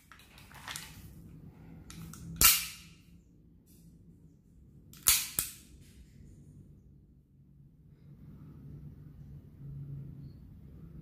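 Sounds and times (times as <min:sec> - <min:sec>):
pistol action clacking: 0:01.9 - 0:02.9, 0:04.9 - 0:05.7.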